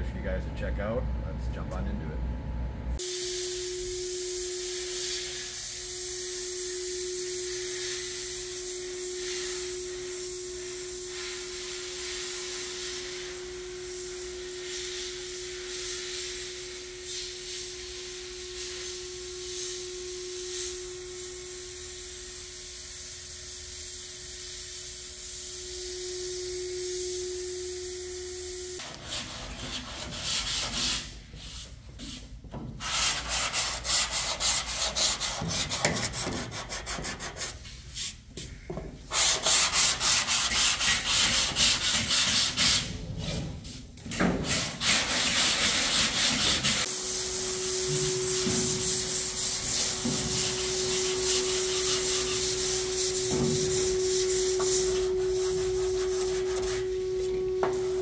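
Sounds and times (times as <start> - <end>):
steady hum: 0.0 - 58.0
sandpaper rubbing on metal: 28.8 - 31.7, 32.8 - 38.2, 39.1 - 43.0, 44.4 - 57.3.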